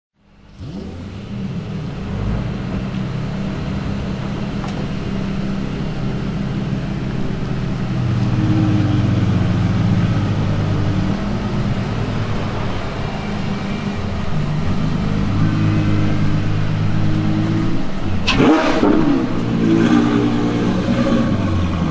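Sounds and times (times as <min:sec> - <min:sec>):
car engine idling: 0:00.2 - 0:21.9.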